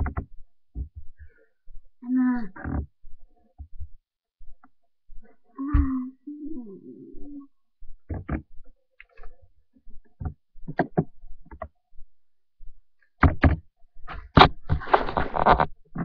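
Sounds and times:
knocks and thumps: 0:00.0 - 0:01.2, 0:08.0 - 0:08.5, 0:10.1 - 0:11.7, 0:13.2 - 0:16.0
rough rustling or scraping: 0:14.6 - 0:16.0.

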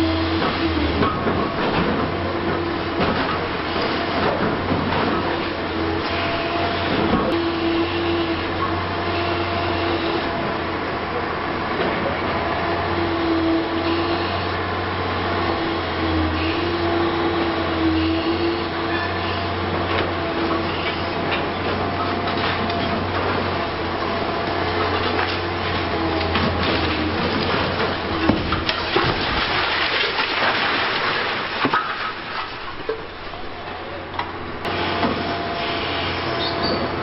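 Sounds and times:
excavator diesel drone: 0:00.0 - 0:29.8, 0:32.9 - 0:37.0.

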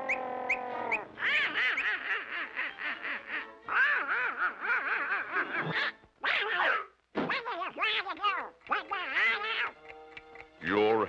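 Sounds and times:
cartoon duck voice jabbering: 0:05.7 - 0:09.8
falling tone with ticks: 0:07.7 - 0:11.0.

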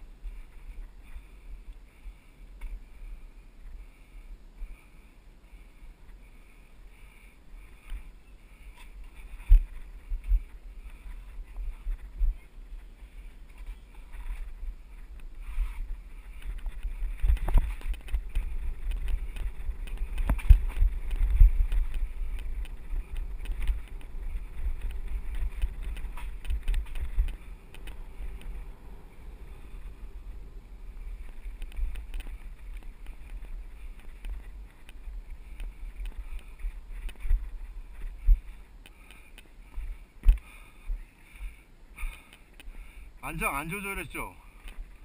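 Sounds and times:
bike rattling over bumps: 0:07.7 - 0:42.9
wind buffeting microphone: 0:07.8 - 0:43.2.

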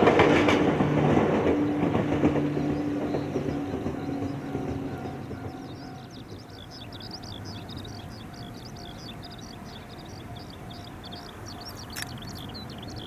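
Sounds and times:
sharp click: 0:11.9 - 0:12.2.

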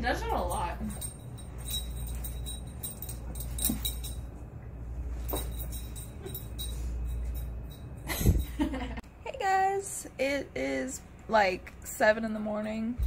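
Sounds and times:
light jingling: 0:00.0 - 0:04.4, 0:05.1 - 0:09.0
steady low hum: 0:00.0 - 0:13.0.

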